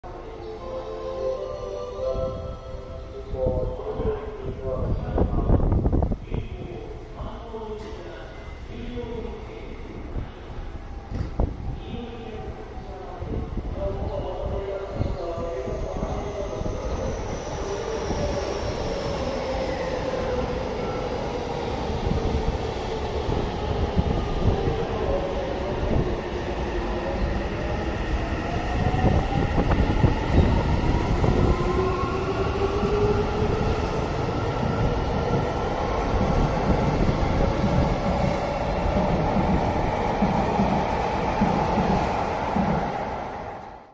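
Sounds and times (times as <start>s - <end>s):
train wheels rumbling on rails: 15.6s - 43.4s.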